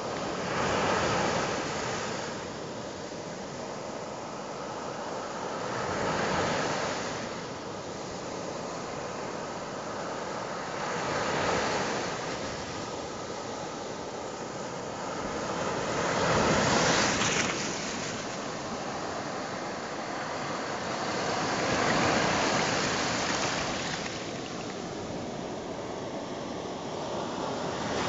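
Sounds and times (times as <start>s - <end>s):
sea surf breaking: 11.0s - 28.0s.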